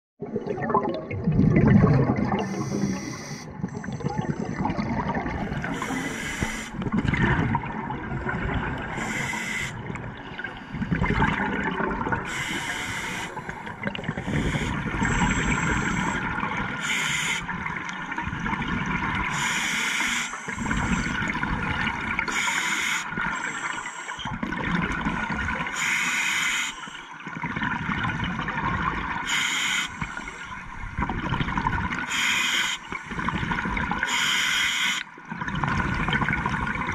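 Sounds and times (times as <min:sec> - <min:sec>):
bubbles gurgling underwater: 0:00.2 - 0:16.9, 0:17.5 - 0:19.5, 0:20.5 - 0:22.4, 0:24.2 - 0:25.8, 0:27.2 - 0:29.3, 0:30.0 - 0:32.1, 0:32.9 - 0:34.1, 0:35.1 - 0:36.9
scuba regulator hiss: 0:02.4 - 0:03.5, 0:05.7 - 0:06.8, 0:09.0 - 0:09.8, 0:12.3 - 0:13.4, 0:16.8 - 0:17.5, 0:19.4 - 0:20.8, 0:22.3 - 0:24.1, 0:25.8 - 0:26.9, 0:29.3 - 0:30.4, 0:32.1 - 0:33.0, 0:34.1 - 0:35.0.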